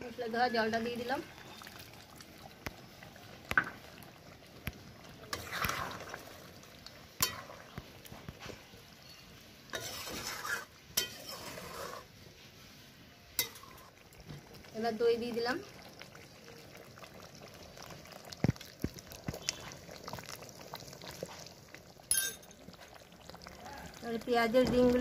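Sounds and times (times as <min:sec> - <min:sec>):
spatula scraping food in a pan: 0:05.3 - 0:06.1, 0:08.4 - 0:12.7.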